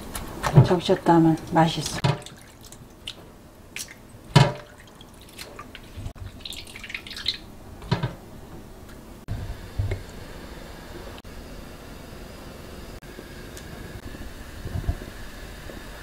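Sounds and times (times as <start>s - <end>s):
water dripping and trickling: 0.7s - 7.5s
wet fish slaps: 3.8s - 5.7s.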